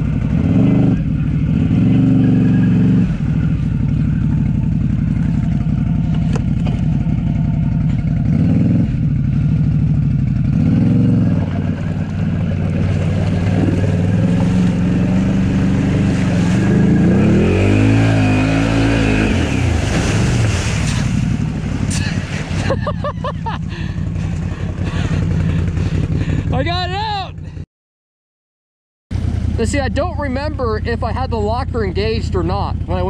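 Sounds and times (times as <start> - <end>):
engine revving: 0.0 - 27.0.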